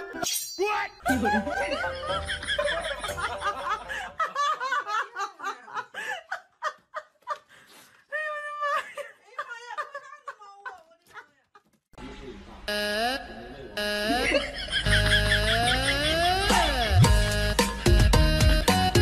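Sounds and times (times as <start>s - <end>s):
people laughing and snickering: 1.1s - 11.2s, 14.0s - 17.1s.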